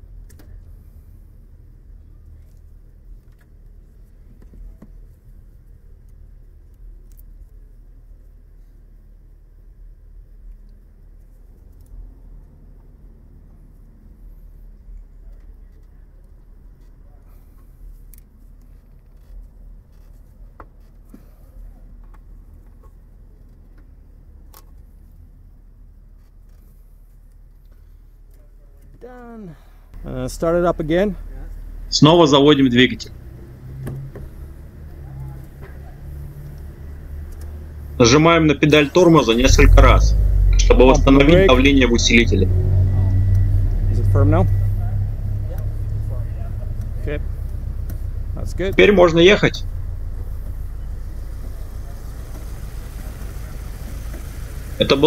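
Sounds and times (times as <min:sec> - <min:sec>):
light clicks of handling hoses: 0:10.4 - 0:25.2, 0:26.1 - 0:29.3
low steady rumble: 0:29.8 - 0:55.0.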